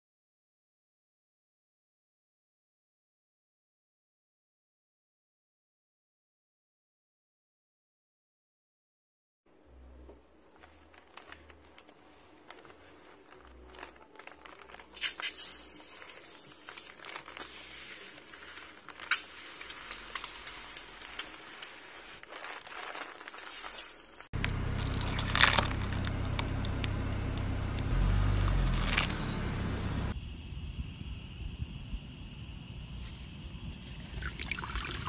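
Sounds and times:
foam squishing: 0:09.9 - 0:27.0, 0:27.8 - 0:29.2
plastic bag crinkling: 0:10.4 - 0:27.0, 0:27.8 - 0:29.2
car tyre crushing sticks: 0:24.4 - 0:30.1.

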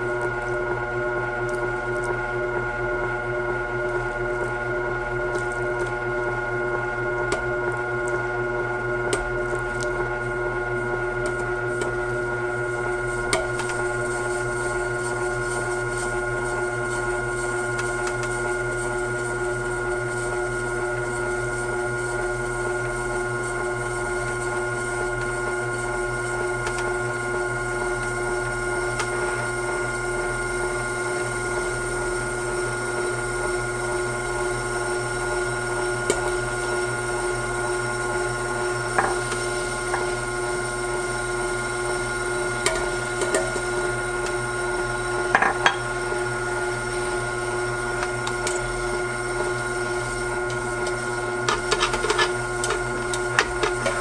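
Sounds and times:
grinder motor hum: 0:00.0 - 0:54.0
dough tumbling in drum: 0:45.3 - 0:54.0.

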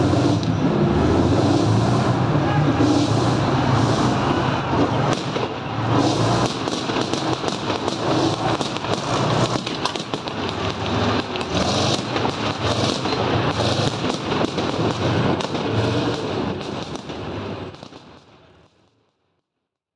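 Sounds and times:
tank diesel engine running: 0:00.0 - 0:17.9
steel tracks clattering: 0:06.1 - 0:16.6.

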